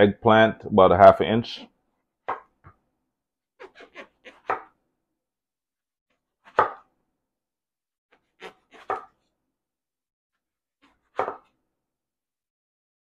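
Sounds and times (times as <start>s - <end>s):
knife slicing eggplant: 3.6s - 4.7s, 8.2s - 9.2s.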